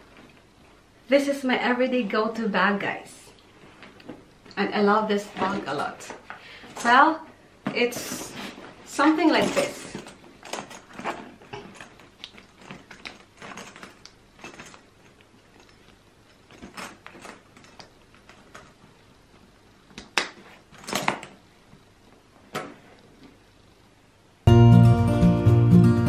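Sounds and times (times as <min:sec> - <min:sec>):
handbag chain clinks and rustles: 0:09.4 - 0:15.8
music: 0:24.4 - 0:26.0.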